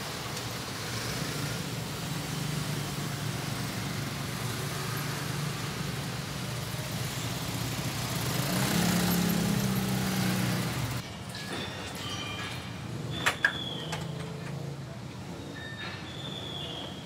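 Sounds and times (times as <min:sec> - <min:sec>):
minibus engine droning: 0:00.0 - 0:11.0
road noise: 0:00.0 - 0:17.0.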